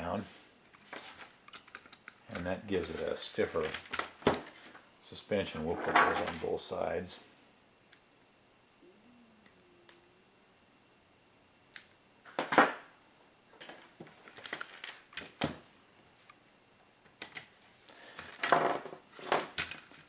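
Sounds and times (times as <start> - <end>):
small parts clicking and rattling: 1.0 - 4.8.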